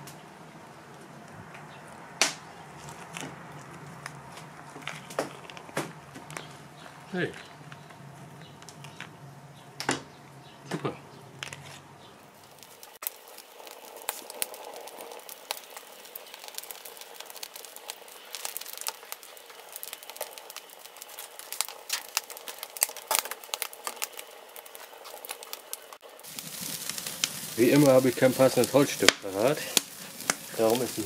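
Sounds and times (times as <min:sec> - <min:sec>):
wood fire crackling: 0:00.0 - 0:31.0
meat sizzling on a grill: 0:12.3 - 0:31.0.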